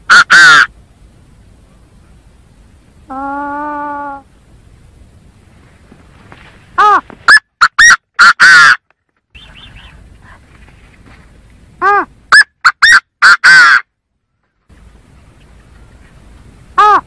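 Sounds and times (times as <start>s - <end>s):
francolin calling: 6.8s - 10.5s.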